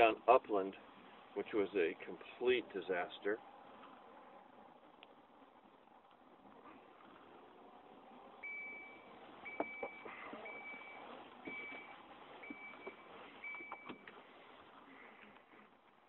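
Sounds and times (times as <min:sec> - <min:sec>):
high electronic warning beeps: 0:08.4 - 0:14.1.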